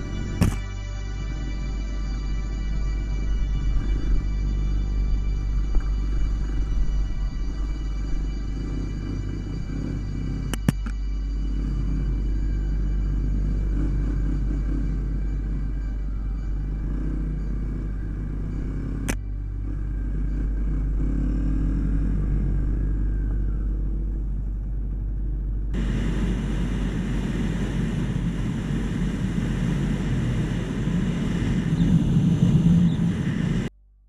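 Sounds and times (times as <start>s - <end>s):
sharp click: 0.4s - 0.7s, 10.5s - 11.0s
dirt bike engine running: 2.5s - 33.7s
wind rush on microphone: 25.7s - 33.7s.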